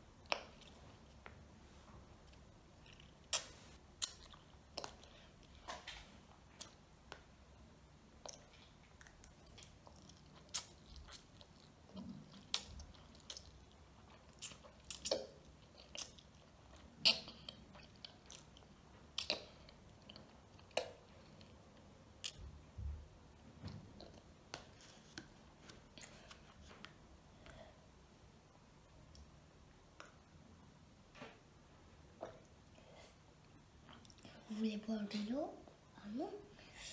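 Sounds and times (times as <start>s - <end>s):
child chewing and slurping: 8.2s - 21.6s.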